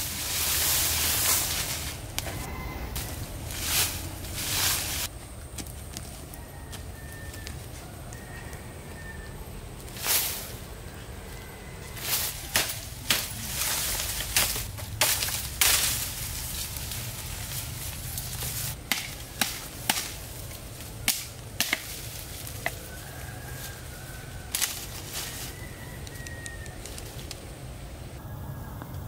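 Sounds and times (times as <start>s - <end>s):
machete chopping bamboo: 12.0s - 16.3s, 18.3s - 22.9s, 24.5s - 24.9s.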